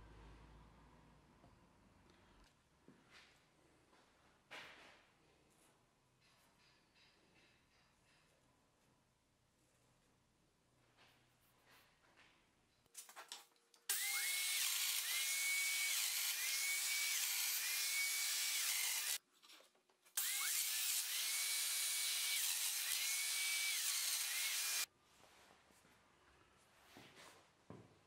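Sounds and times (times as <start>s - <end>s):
power tool motor whining: 13.9s - 19.2s, 20.2s - 24.9s.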